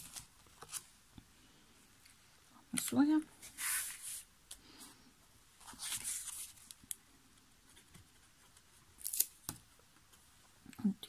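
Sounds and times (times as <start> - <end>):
paper rustling: 5.6 - 6.8.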